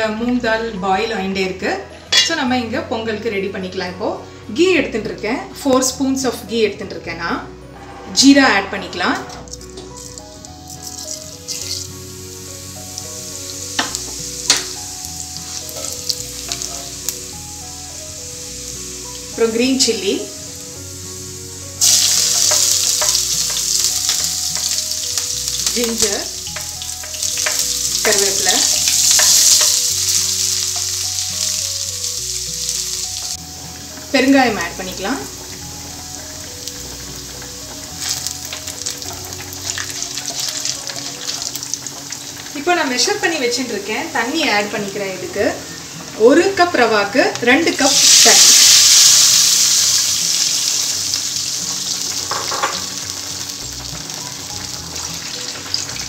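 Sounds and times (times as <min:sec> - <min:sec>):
soft background music: 0:00.0 - 0:56.0
seeds sizzling in hot oil: 0:09.4 - 0:56.0
sharp crackles and clicks: 0:21.8 - 0:32.2.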